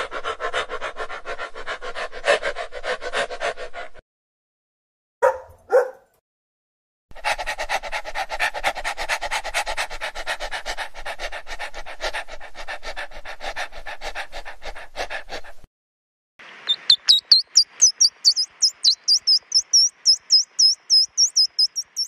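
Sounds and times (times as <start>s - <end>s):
dog panting: 0.0s - 4.0s, 7.1s - 15.7s.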